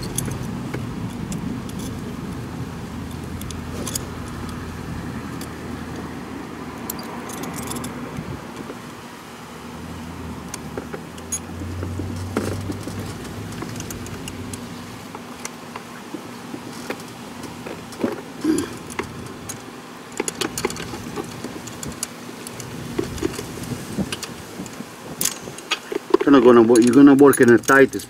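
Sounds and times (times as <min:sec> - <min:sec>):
low steady hum: 0:00.0 - 0:28.0
light metallic clinks of wrench: 0:26.4 - 0:28.0.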